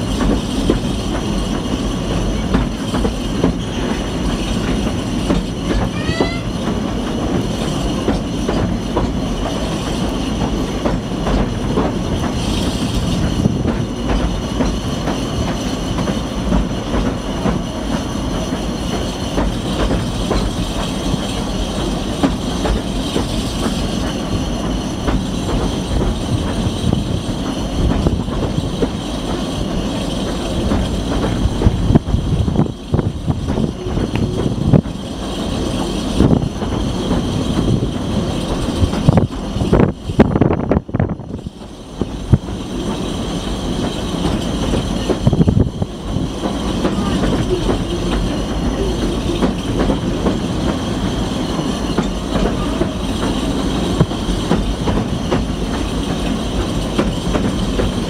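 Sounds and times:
rumble of wheels on track: 0.0 - 58.0
high wheel squeal: 41.2 - 58.0.

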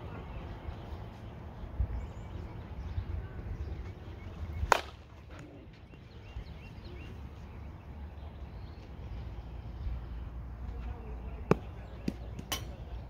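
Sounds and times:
bat striking ball: 4.7 - 5.2.

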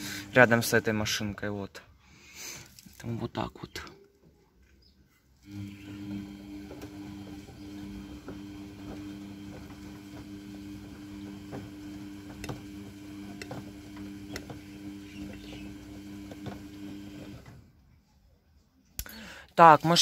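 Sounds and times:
washing machine motor hum: 0.0 - 1.6, 5.4 - 17.9
drum clicks and knocks: 11.4 - 14.7.

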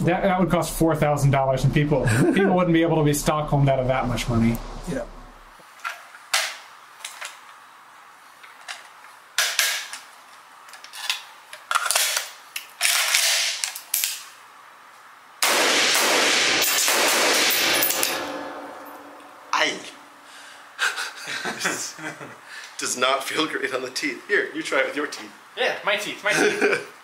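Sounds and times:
loud steady rushing noise: 0.0 - 5.6
rifle shots: 15.4 - 19.1.

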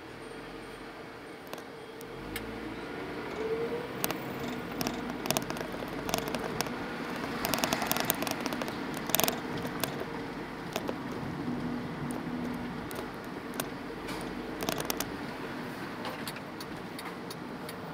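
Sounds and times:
slow vehicle on street: 0.0 - 17.9
clicks and rattles: 1.4 - 2.1, 4.0 - 11.2, 12.1 - 15.1.

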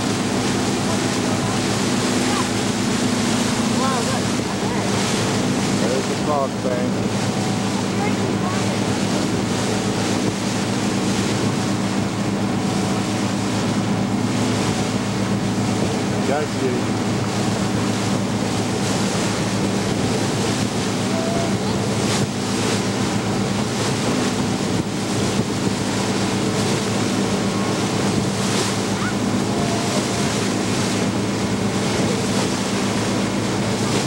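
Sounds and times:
boat engine humming: 0.0 - 34.0
water rushing past hull: 0.0 - 34.0
wind buffeting microphone: 6.9 - 34.0.

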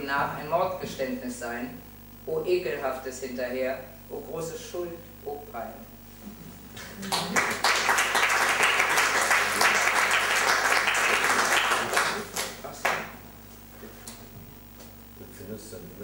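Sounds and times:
audience applauding: 6.8 - 13.2.

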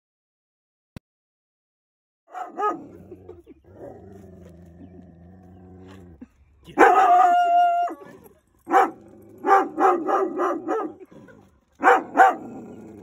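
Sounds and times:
dog howling bark: 2.3 - 3.4, 6.7 - 13.0
dog yelping: 2.3 - 3.6, 6.7 - 13.0.

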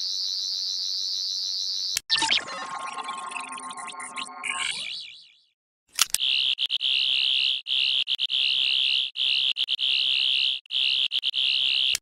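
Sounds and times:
warbling electronic buzz: 2.1 - 5.4.

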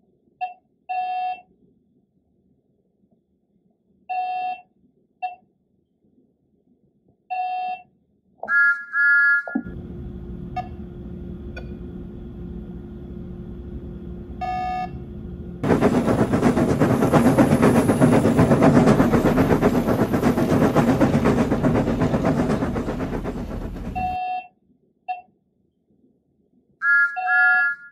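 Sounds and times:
loud rushing noise: 9.7 - 24.2.

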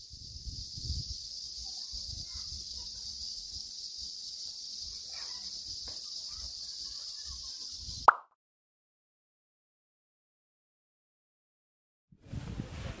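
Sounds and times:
insect chorus drone: 0.0 - 8.1.

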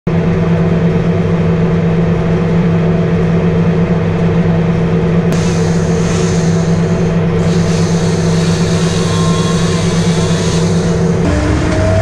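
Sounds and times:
combine engine droning: 0.1 - 12.0
high hiss: 5.4 - 11.2.

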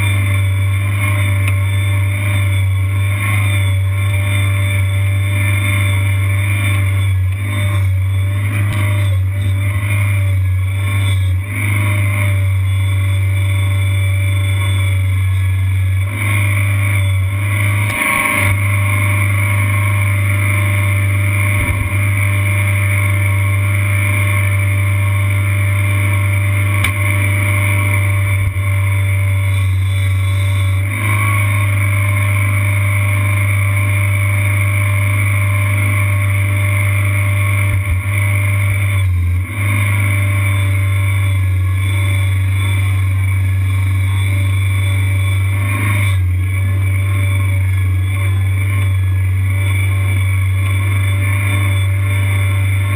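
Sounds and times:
skid steer engine running: 0.0 - 52.9.

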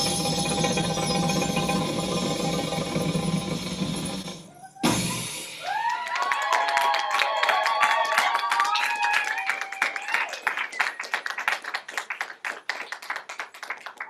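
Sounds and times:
high voices whooping and cheering: 4.5 - 11.0
audience clapping: 5.6 - 14.0.

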